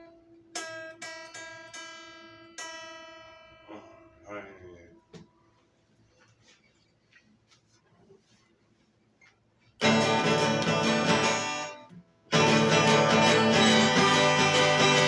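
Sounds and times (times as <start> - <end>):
acoustic guitar strumming: 0.0 - 4.2, 9.8 - 15.0
guitar string and finger ticks: 9.8 - 12.0.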